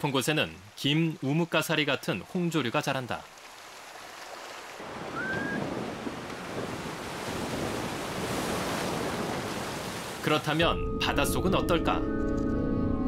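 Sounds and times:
sea surf washing in: 0:04.8 - 0:10.6.

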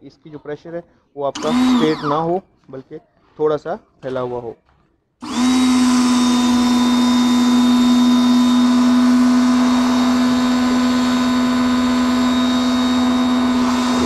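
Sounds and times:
pressure washer motor humming: 0:01.4 - 0:02.2, 0:05.2 - 0:14.0.

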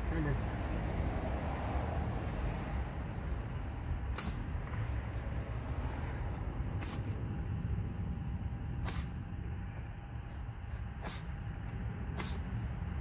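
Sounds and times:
low background rumble: 0:00.0 - 0:13.0
razor blade scraping decal: 0:04.1 - 0:04.5, 0:06.8 - 0:07.3, 0:08.7 - 0:09.3, 0:10.3 - 0:11.5, 0:12.1 - 0:12.7.

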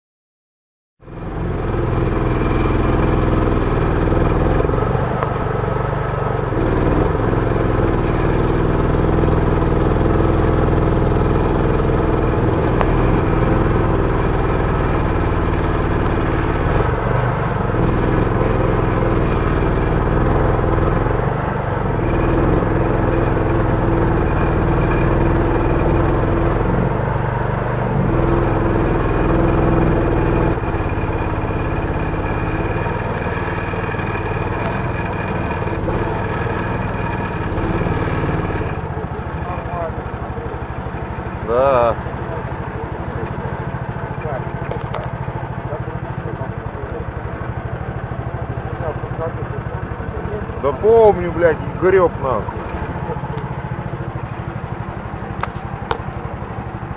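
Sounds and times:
outboard motor running: 0:01.0 - 0:56.9.

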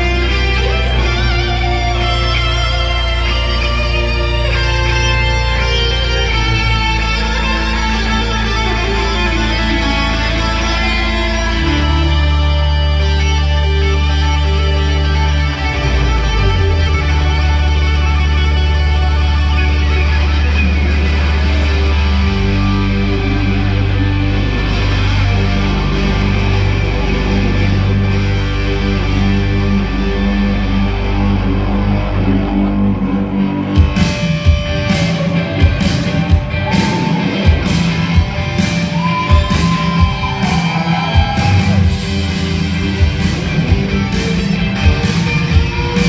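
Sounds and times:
live electric guitar rock music: 0:00.0 - 0:46.0.

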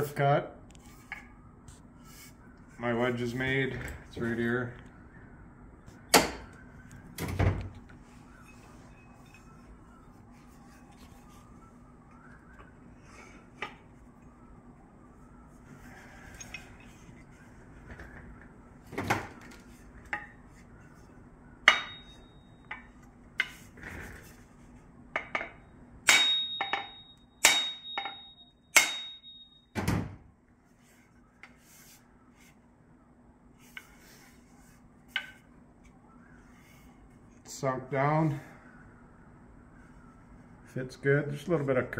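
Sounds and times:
axe head knocks: 0:06.1 - 0:06.5
high metallic ring: 0:21.6 - 0:22.9, 0:26.1 - 0:29.7.

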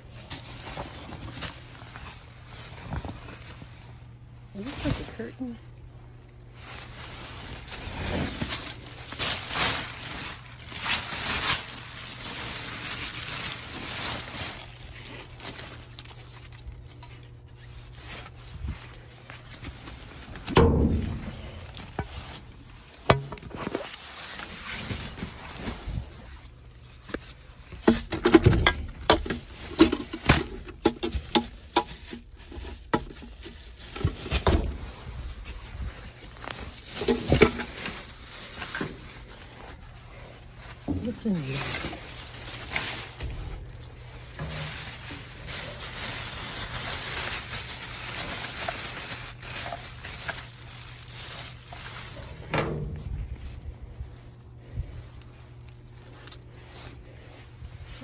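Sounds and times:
plastic bags crinkling: 0:00.0 - 0:58.0
knocks and thumps of items moved: 0:19.6 - 0:26.0, 0:27.1 - 0:39.2.

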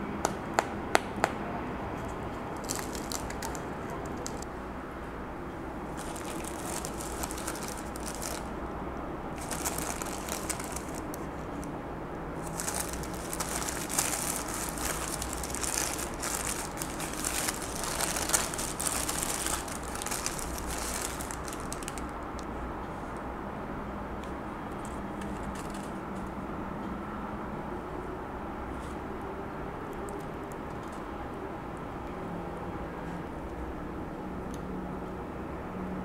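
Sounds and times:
paper wrapper crinkling: 0:02.6 - 0:04.5, 0:05.9 - 0:08.6, 0:09.4 - 0:11.7, 0:12.4 - 0:22.2.

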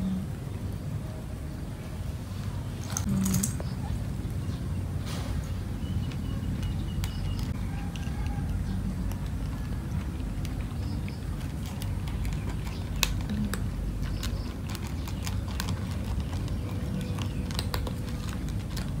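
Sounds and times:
steady low rumble: 0:00.0 - 0:19.0
cats crunching dry kibble: 0:06.1 - 0:19.0.

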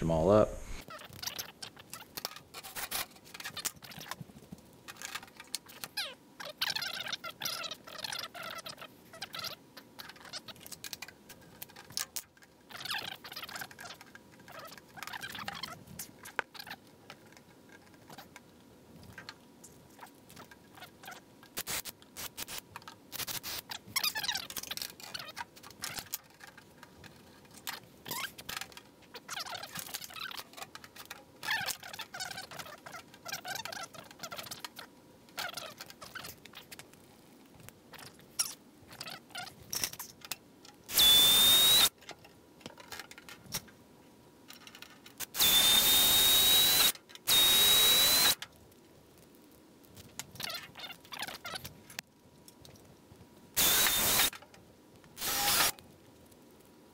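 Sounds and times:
squeaks: 0:05.1 - 0:10.6, 0:12.7 - 0:15.8, 0:27.7 - 0:28.5, 0:35.4 - 0:36.7
cordless drill whining: 0:40.9 - 0:41.9, 0:45.3 - 0:48.4, 0:53.6 - 0:54.3, 0:55.2 - 0:55.7.

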